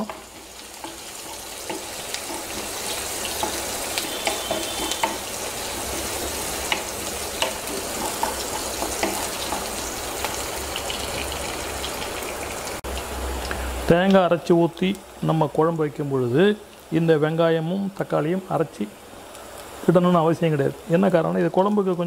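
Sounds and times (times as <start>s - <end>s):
wooden spatula stirring: 0.0s - 9.9s
crackles and pops of frying: 0.0s - 22.0s
onions sizzling in hot oil: 0.0s - 22.0s.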